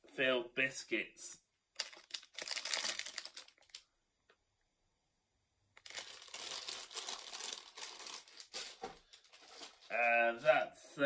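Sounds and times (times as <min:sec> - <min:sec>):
plastic wrappers crinkling: 0:01.8 - 0:03.9, 0:05.8 - 0:09.9.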